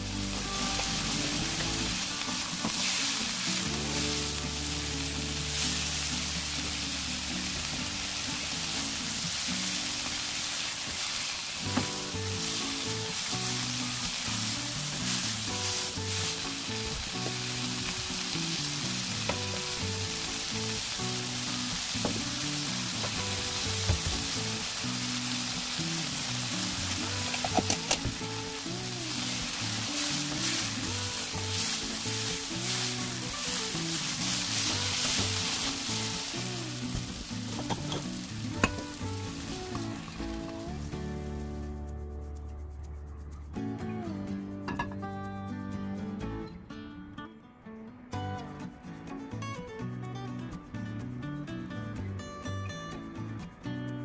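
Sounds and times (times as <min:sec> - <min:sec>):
food sizzling in oil: 0:00.0 - 0:41.6.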